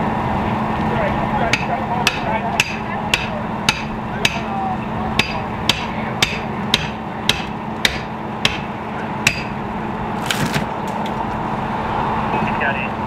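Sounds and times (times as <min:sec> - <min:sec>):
metal striking pry bar: 0:05.2 - 0:08.7, 0:09.3 - 0:09.6.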